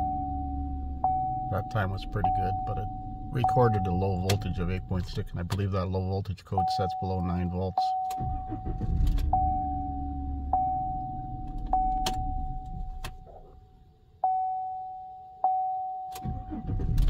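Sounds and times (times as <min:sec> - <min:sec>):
warning chime dinging: 0:00.0 - 0:05.3
engine cranking: 0:08.1 - 0:09.5, 0:16.2 - 0:17.0.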